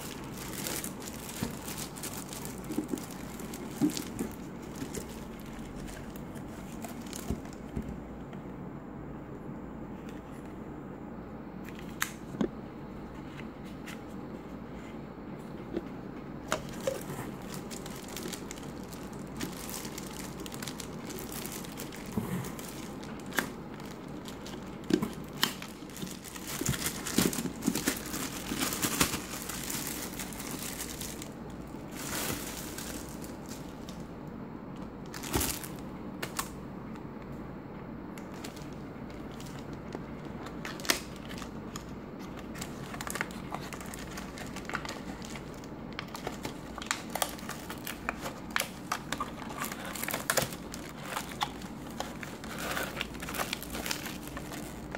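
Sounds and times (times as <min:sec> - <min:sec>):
plastic packaging crinkling: 0:00.0 - 0:07.8, 0:16.4 - 0:34.1, 0:35.0 - 0:36.6, 0:38.2 - 0:54.9.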